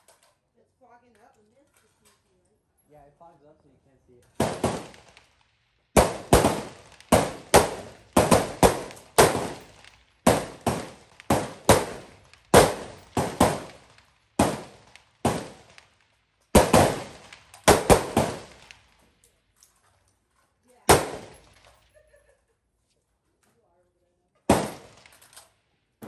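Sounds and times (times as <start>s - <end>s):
rifle shots echoing: 4.3s - 19.0s, 20.8s - 21.9s, 24.5s - 25.6s.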